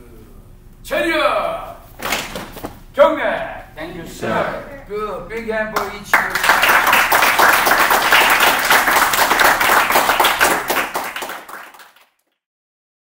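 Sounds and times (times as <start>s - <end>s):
small group clapping: 2.0s - 2.7s, 5.4s - 12.4s.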